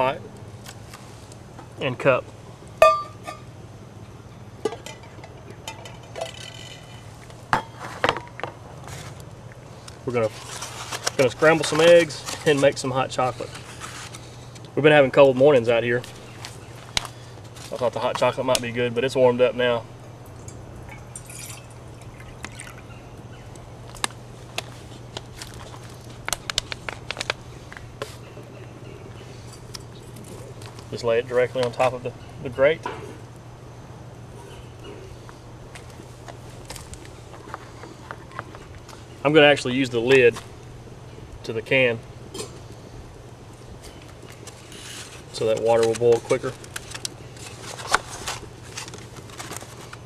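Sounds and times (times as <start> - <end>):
low steady hum: 0.0 - 50.0
short metallic ring: 2.8 - 3.4
metal pot clinking on concrete: 2.8 - 3.5, 20.4 - 22.8
water trickling into metal cup: 20.9 - 22.9.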